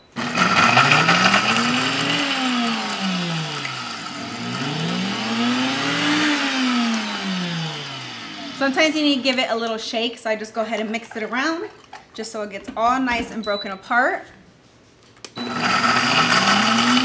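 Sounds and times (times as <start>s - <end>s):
blender motor: 0.1s - 9.4s, 15.4s - 17.0s.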